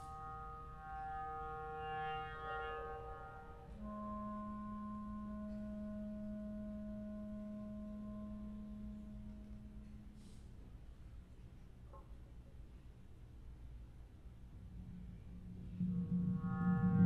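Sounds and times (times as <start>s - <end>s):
ringing sustained tones: 0.0s - 10.3s, 14.6s - 17.0s
clarinet low note: 0.0s - 10.4s.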